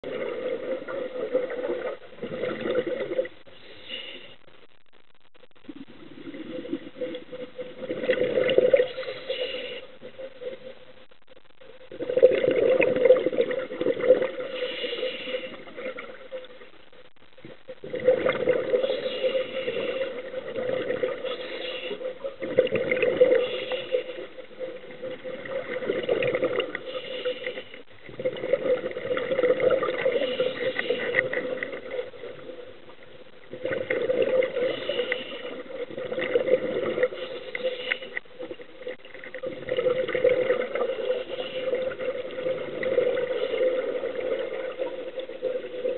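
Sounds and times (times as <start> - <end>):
exhaled bubbles gurgling underwater: 0.0 - 4.6, 5.5 - 45.9
regulator inhalations: 3.5 - 4.5, 8.9 - 10.1, 14.4 - 15.7, 18.8 - 20.2, 21.2 - 22.1, 23.3 - 24.3, 26.8 - 27.8, 30.0 - 31.4, 34.6 - 35.7, 37.0 - 38.2.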